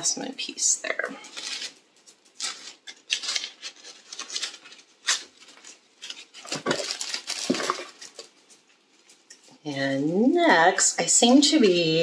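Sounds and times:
packaging rustling: 1.2s - 9.4s.

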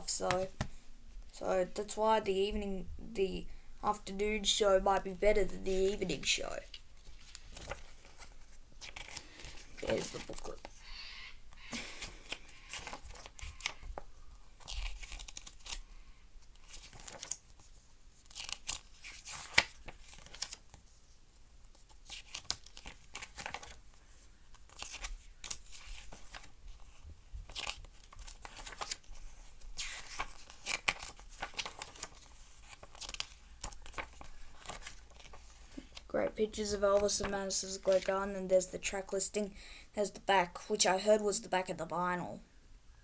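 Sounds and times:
paper pages turning: 5.7s - 10.8s, 11.8s - 15.8s, 16.4s - 38.7s.

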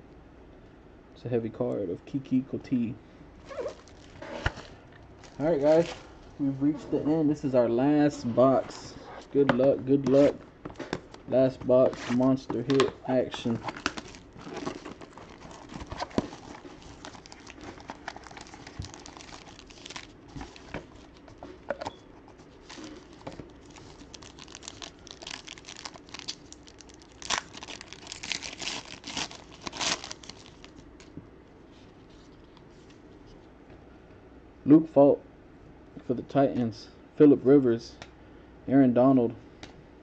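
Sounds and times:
plastic wrapping crinkling: 3.4s - 6.3s, 13.4s - 21.4s, 22.3s - 31.1s.

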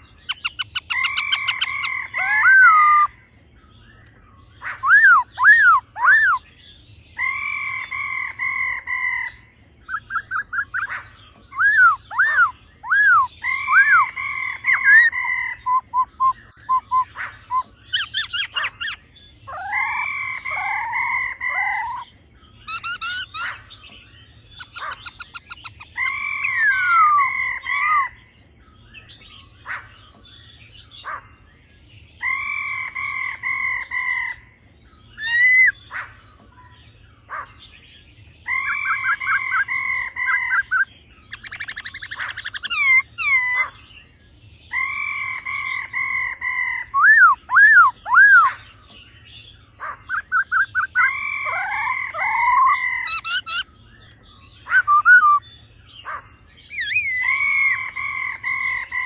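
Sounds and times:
bird singing whistled phrases: 0.3s - 3.2s, 4.8s - 6.5s, 9.9s - 10.9s, 11.5s - 22.0s, 24.6s - 28.1s, 35.2s - 35.8s, 46.9s - 48.6s, 50.1s - 53.7s, 54.6s - 55.4s, 56.7s - 57.9s.

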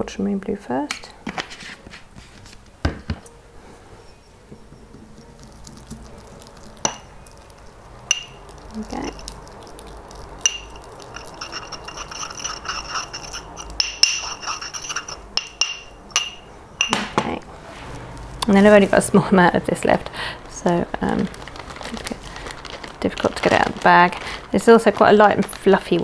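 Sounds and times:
metal spatula scraping in glass beaker: 10.4s - 15.6s.

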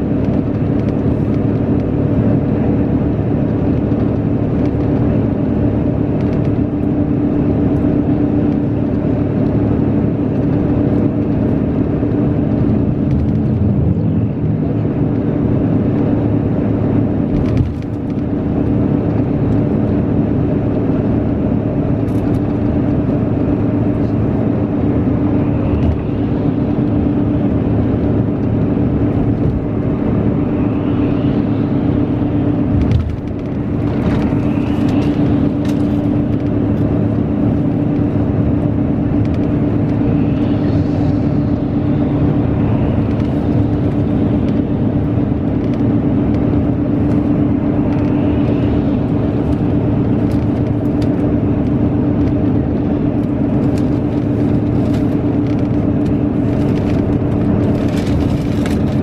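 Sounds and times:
bus engine and tyres drone: 0.0s - 59.0s.

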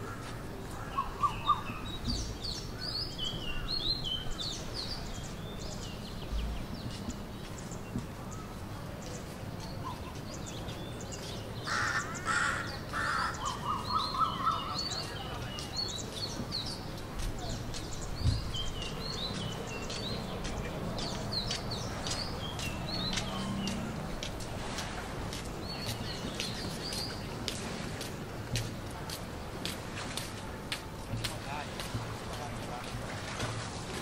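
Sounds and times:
birds chirping: 0.0s - 34.0s
harsh bird calls: 11.6s - 16.8s
dull thump: 18.2s - 18.5s.

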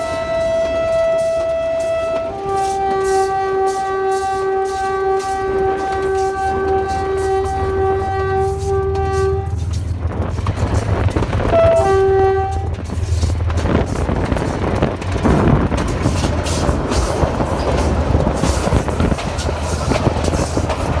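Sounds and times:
locomotive horn blast: 0.0s - 9.8s, 11.4s - 13.0s
locomotive engine droning: 0.0s - 21.0s
train wheels clicking over rail joints: 0.0s - 21.0s.

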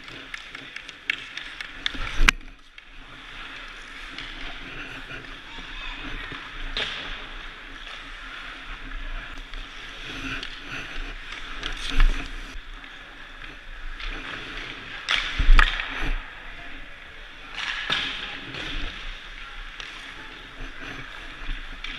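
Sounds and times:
skate blades scraping ice: 0.0s - 16.3s, 17.4s - 21.9s
sticks and pucks clattering: 0.0s - 16.4s, 17.2s - 21.9s.

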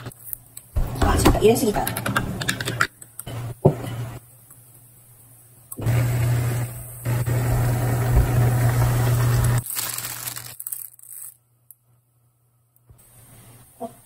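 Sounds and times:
water boiling in a pot: 5.8s - 9.6s
plastic bag rustling: 9.5s - 11.4s.

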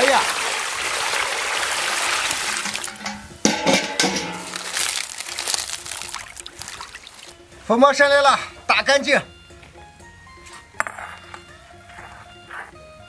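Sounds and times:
water pouring into plastic tub: 0.0s - 3.1s, 4.4s - 7.4s
hands handling wet leaves: 0.0s - 7.4s
water splashing: 0.0s - 7.5s.

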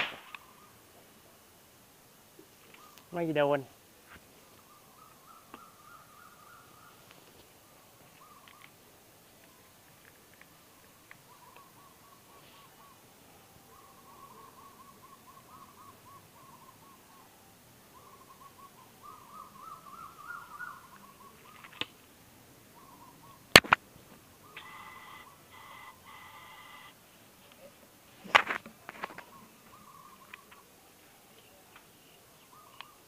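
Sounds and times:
gun firing bang: 0.0s - 0.3s
bird hooting calls: 0.0s - 0.9s, 2.6s - 3.2s, 4.4s - 8.8s, 10.5s - 21.8s, 22.7s - 23.5s, 24.4s - 27.0s, 28.9s - 33.0s.

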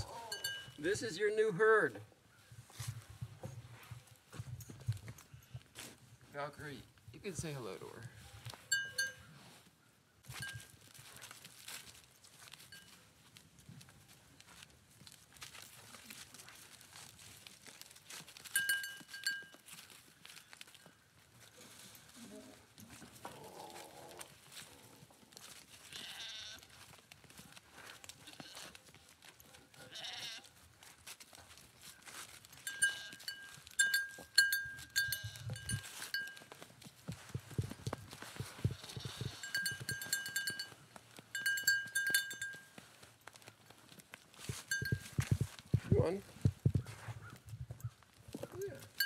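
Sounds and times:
hooves shuffling through dry leaves: 0.0s - 6.6s, 7.3s - 49.0s
high metallic clinks: 0.1s - 1.0s, 18.5s - 19.6s, 32.6s - 36.5s, 39.0s - 42.8s, 44.5s - 45.4s
goat bleating: 25.9s - 26.7s, 29.8s - 30.5s, 32.7s - 33.5s, 35.0s - 35.7s, 38.7s - 40.1s.

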